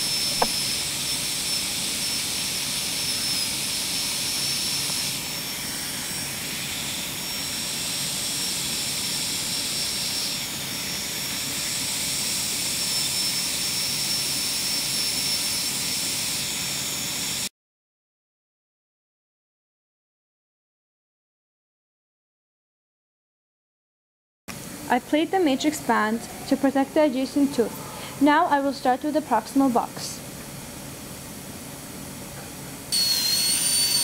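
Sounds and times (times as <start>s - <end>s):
dental drill whining: 0.0s - 17.5s, 25.0s - 29.6s, 32.9s - 34.0s.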